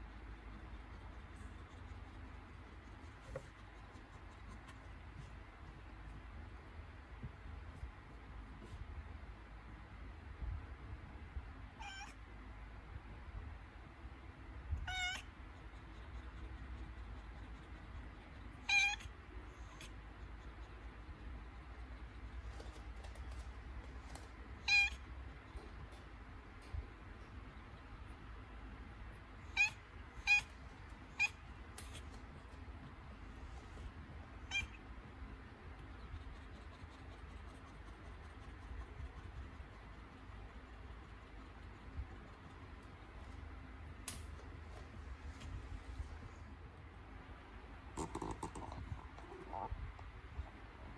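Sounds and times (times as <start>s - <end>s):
cat meowing: 11.8s - 12.2s, 14.8s - 15.3s, 18.6s - 19.1s, 24.6s - 25.0s, 29.5s - 30.5s, 34.4s - 34.8s.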